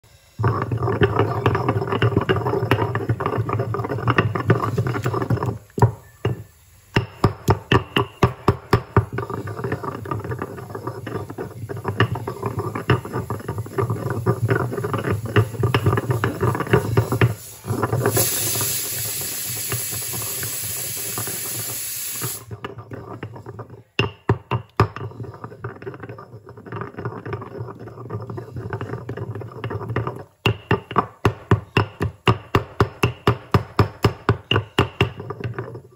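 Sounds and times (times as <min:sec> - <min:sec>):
steady hiss: 0:00.0 - 0:23.1
stone pestle pounding in mortar: 0:00.4 - 0:18.2, 0:22.6 - 0:35.9.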